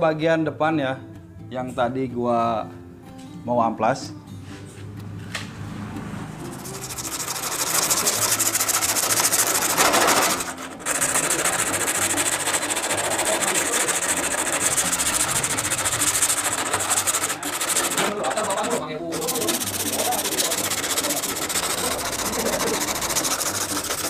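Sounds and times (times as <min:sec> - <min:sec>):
sandpaper scratching on metal: 0:06.3 - 0:24.0.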